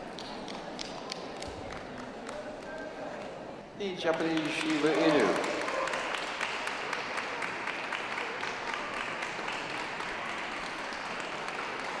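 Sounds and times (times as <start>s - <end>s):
audience applauding: 4.1s - 12.0s.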